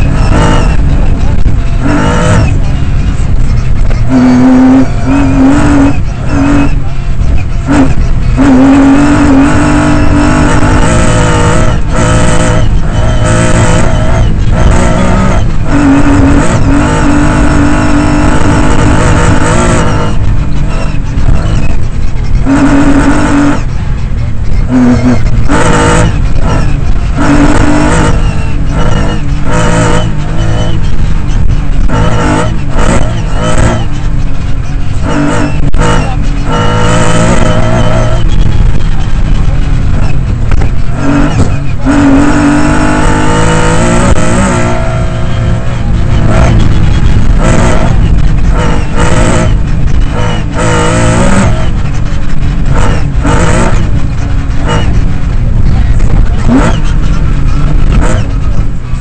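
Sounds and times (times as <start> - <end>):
rally car engine revving: 0.0 - 59.0
tyres rumbling on gravel: 0.0 - 59.0.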